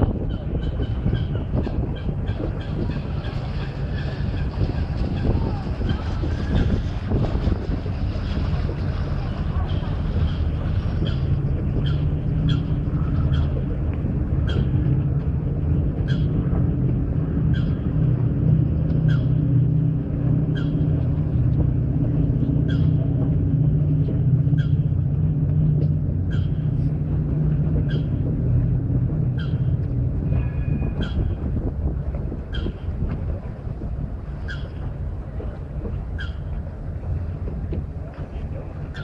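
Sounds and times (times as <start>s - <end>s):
boat engine humming: 0.0s - 39.0s
bird calling: 9.6s - 13.7s, 14.4s - 14.8s, 16.0s - 16.4s, 17.4s - 18.0s, 19.0s - 19.6s, 20.4s - 21.3s, 22.5s - 23.2s, 24.4s - 25.0s, 26.2s - 26.9s, 27.8s - 28.2s, 29.3s - 31.5s, 32.5s - 33.0s, 34.3s - 35.0s, 36.0s - 36.7s.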